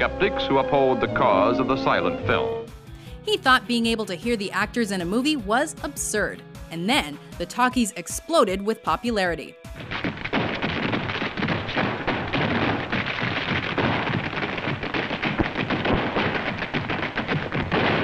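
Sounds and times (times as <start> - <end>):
tap shoes clattering on stage: 10.0 - 18.0.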